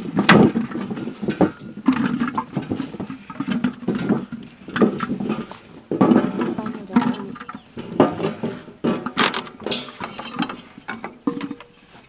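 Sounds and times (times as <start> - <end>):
sweet potatoes knocking and scraping: 0.0 - 12.0.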